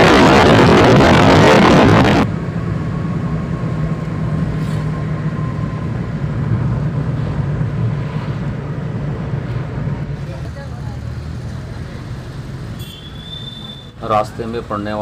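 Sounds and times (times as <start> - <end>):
rushing wind: 0.0 - 10.3
low engine hum: 0.0 - 12.8
car road noise: 0.0 - 15.0.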